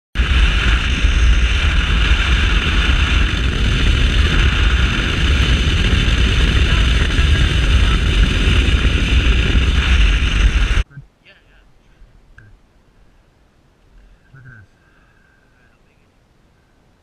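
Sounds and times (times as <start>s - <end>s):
boat engine at speed: 0.2s - 10.8s
wind rumble on microphone: 0.2s - 11.1s
water noise: 0.2s - 13.2s.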